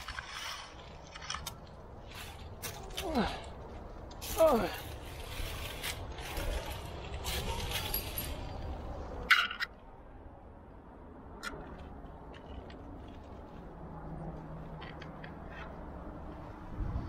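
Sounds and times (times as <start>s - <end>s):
climbing gear clinking on rock: 6.2s - 8.8s.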